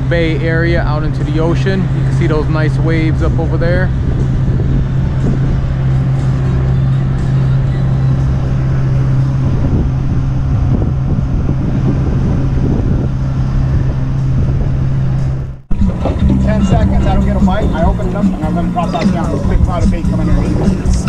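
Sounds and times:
boat motor droning: 0:00.0 - 0:21.0
water rushing: 0:12.4 - 0:21.0.

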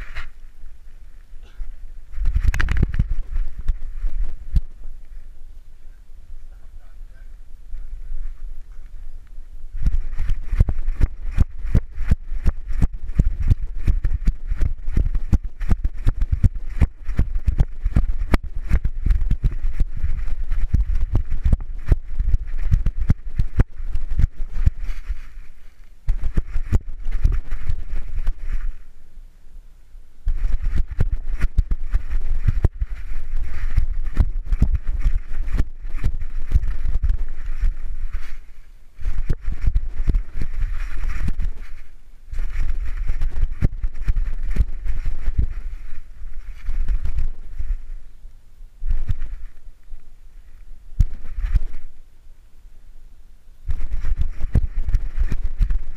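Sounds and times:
low rumble: 0:00.0 - 0:29.2, 0:30.2 - 0:52.1
camera knocking and rubbing: 0:01.5 - 0:04.8, 0:09.8 - 0:28.8, 0:30.3 - 0:48.0, 0:48.8 - 0:49.6, 0:51.0 - 0:52.0, 0:53.7 - 0:55.9.

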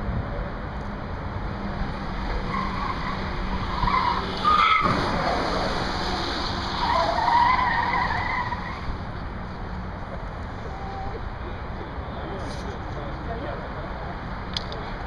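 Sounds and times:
car tyres squealing: 0:02.3 - 0:09.1.

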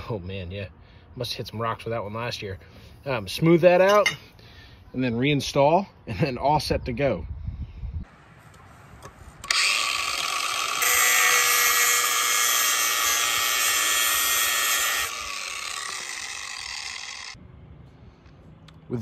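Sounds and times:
angle grinder grinding steel: 0:09.4 - 0:17.4.

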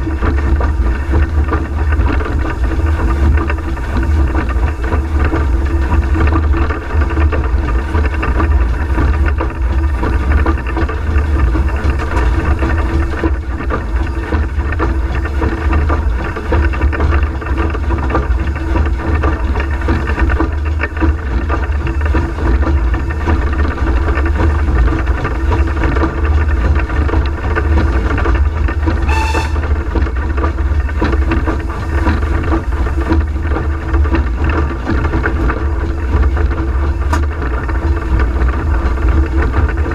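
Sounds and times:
steam locomotive rumble and clatter: 0:00.0 - 0:39.9
brief high squeal: 0:29.1 - 0:29.7.

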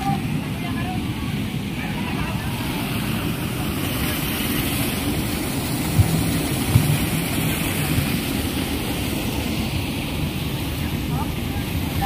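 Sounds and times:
water rushing over rocks: 0:00.0 - 0:12.0
soft knocks: 0:05.9 - 0:07.1.

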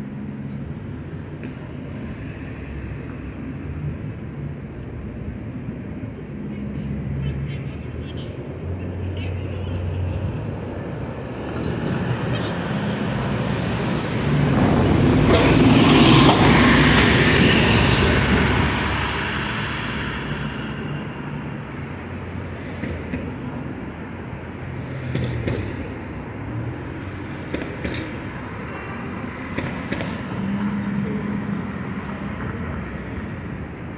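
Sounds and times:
city traffic noise: 0:00.0 - 0:33.9
diesel bus driving past: 0:10.0 - 0:27.5.

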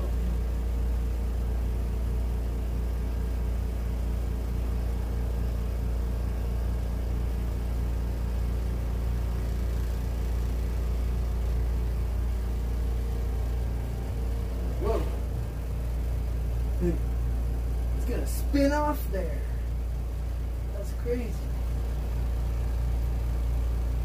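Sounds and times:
spin dryer motor humming: 0:00.0 - 0:24.0.

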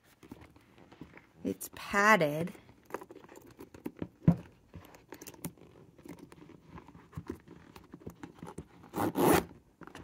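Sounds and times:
quick rasping zipper pull: 0:08.8 - 0:09.5
zipper catching and clicking: 0:08.8 - 0:09.6.

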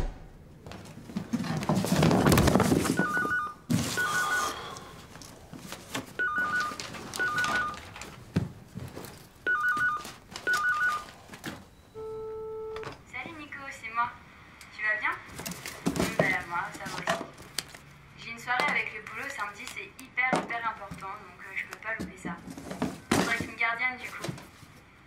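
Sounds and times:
telephone ringing: 0:03.0 - 0:04.8, 0:06.2 - 0:08.0, 0:09.4 - 0:11.2, 0:12.0 - 0:13.0.

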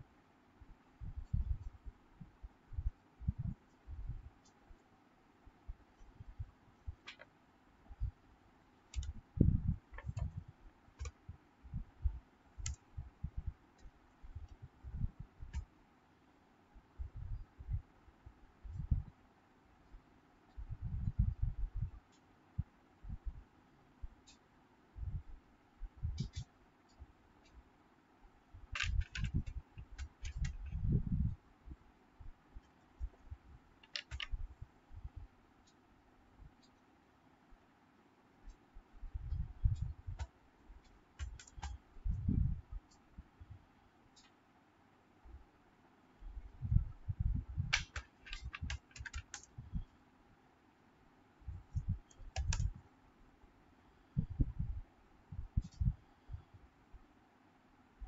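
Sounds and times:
keyboard keys clicking: 0:28.7 - 0:30.8, 0:33.8 - 0:34.4, 0:41.2 - 0:41.8, 0:47.7 - 0:49.5, 0:52.1 - 0:52.7.

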